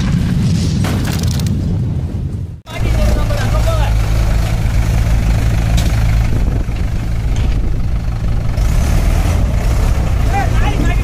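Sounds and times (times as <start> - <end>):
tractor diesel engine running: 2.7 - 11.0.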